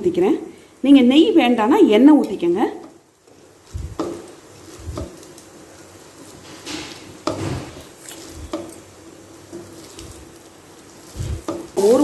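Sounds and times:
dough thumping and scraping in pan: 0:03.3 - 0:12.0.

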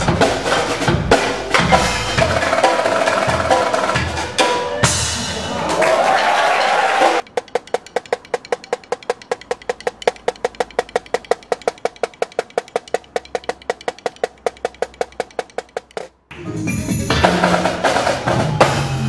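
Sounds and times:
sharp percussion clicks: 0:07.2 - 0:16.2.

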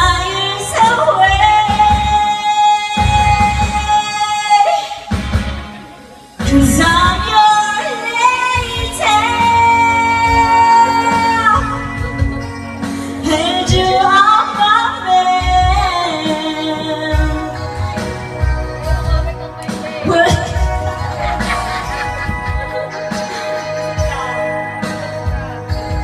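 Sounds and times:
woman singing into a microphone: 0:00.0 - 0:05.2, 0:06.4 - 0:21.8
backing music track: 0:00.0 - 0:26.0.

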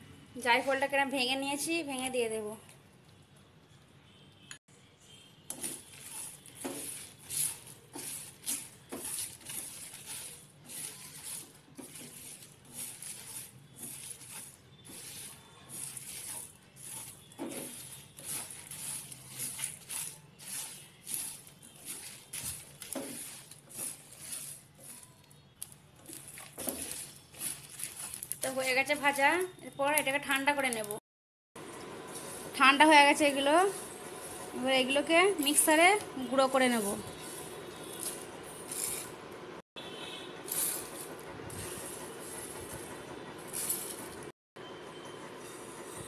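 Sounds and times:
spices rattling in a dry pan: 0:05.5 - 0:30.9, 0:32.0 - 0:39.2, 0:40.4 - 0:44.3.

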